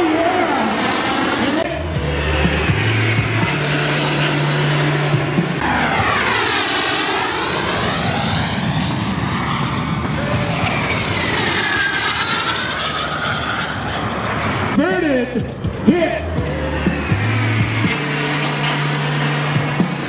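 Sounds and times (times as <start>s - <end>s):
jet aircraft flying low past: 0.0s - 20.0s
background music tones: 1.7s - 6.4s, 14.7s - 20.0s.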